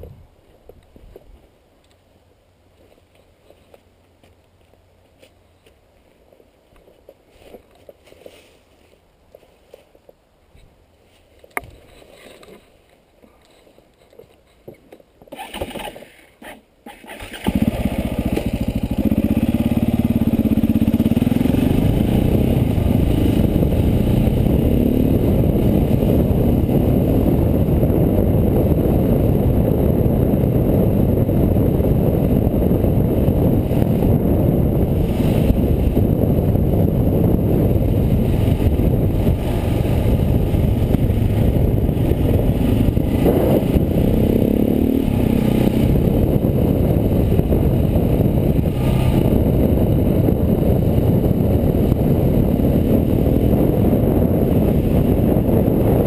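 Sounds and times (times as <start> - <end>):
motorcycle engine running: 17.2 - 56.0.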